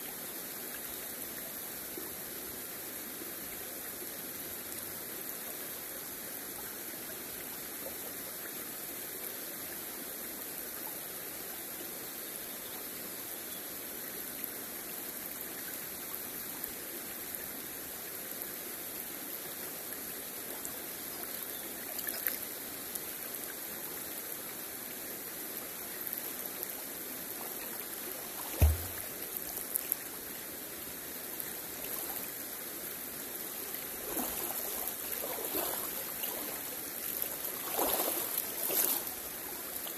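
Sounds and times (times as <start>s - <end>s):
river water running over stones: 0.0s - 39.9s
small splashes: 27.3s - 30.0s, 31.8s - 32.3s, 33.5s - 39.9s
low thump: 28.5s - 29.1s.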